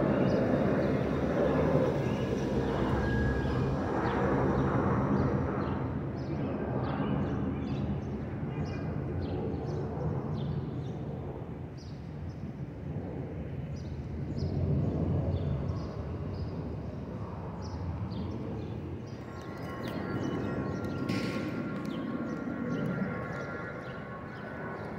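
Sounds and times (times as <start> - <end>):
jet engines rumbling overhead: 0.0 - 24.9
small birds chirping: 17.6 - 24.9.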